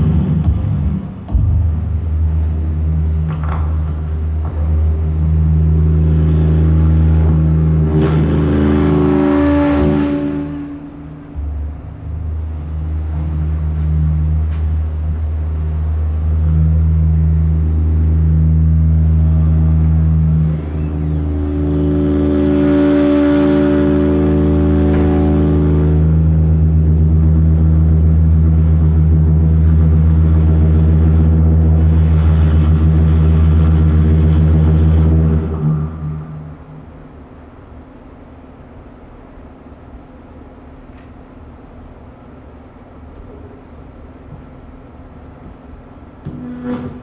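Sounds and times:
drum feedback drone: 0.0 - 40.2, 44.2 - 47.0
high feedback tones: 2.1 - 37.0.

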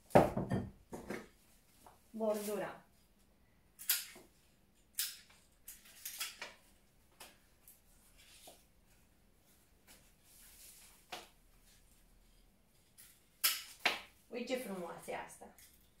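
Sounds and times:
flower stems clicking and rustling: 3.8 - 8.5.

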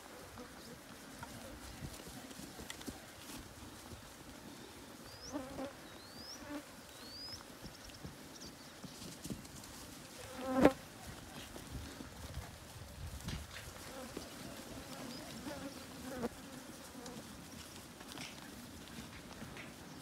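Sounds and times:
hooves shuffling on dirt: 0.0 - 20.0
flies buzzing: 4.6 - 7.3, 13.8 - 17.3.

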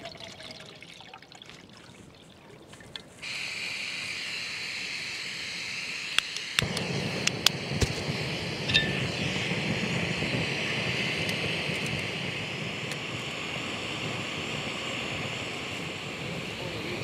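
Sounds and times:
water trickling into a cup: 0.0 - 3.0
burner flame rushing: 3.2 - 17.0
gas valve hissing: 3.2 - 17.0
igniter clicks: 6.1 - 9.1.

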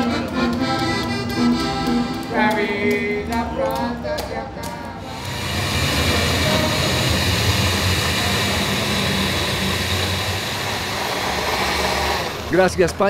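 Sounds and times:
blender running: 5.0 - 12.8.

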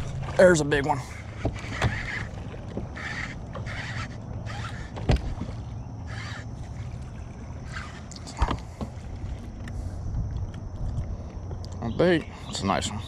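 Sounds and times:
steady low hum: 0.0 - 13.0
fishing reel cranking: 0.8 - 5.0, 6.0 - 7.0, 7.6 - 8.4
knocks against boat: 4.9 - 5.6.

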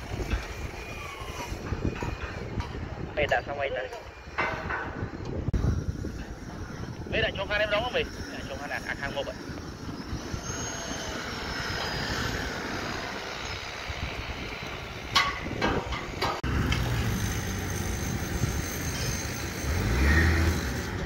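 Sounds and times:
metal clanks: 1.5 - 5.4, 15.1 - 16.9
diesel engine humming: 6.9 - 21.0.

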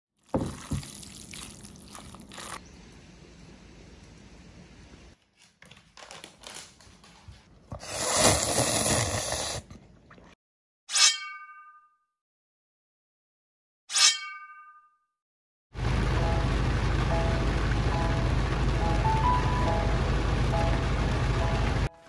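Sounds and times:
low steady hiss: 2.6 - 5.1.

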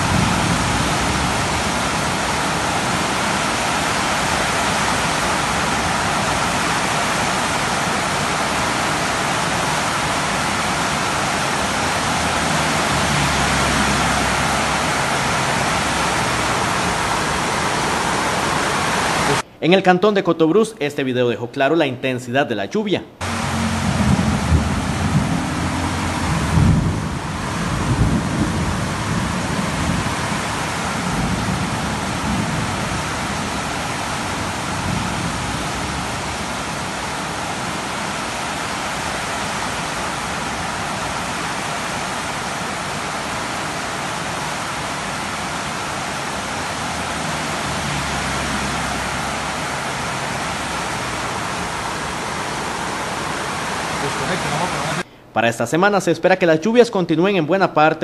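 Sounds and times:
heavy rain pounding: 0.0 - 19.5, 23.2 - 55.1
low rumbling: 23.2 - 36.9.

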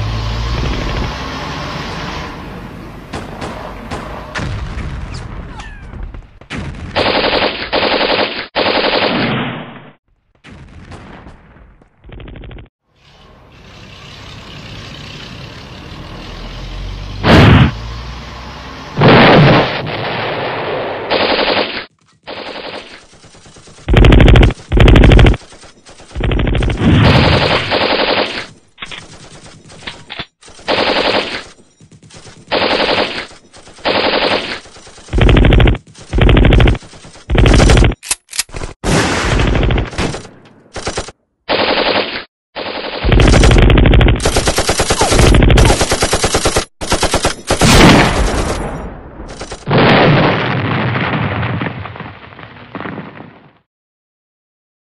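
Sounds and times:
machine gun bursts: 21.1 - 38.5, 39.7 - 48.6, 49.3 - 49.7.

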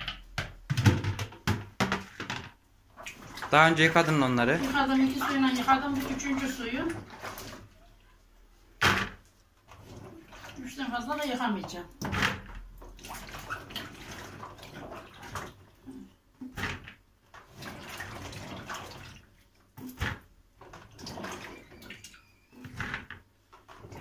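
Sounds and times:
water sloshing and splashing: 0.8 - 24.0
vegetables rubbed in water: 2.9 - 7.9.

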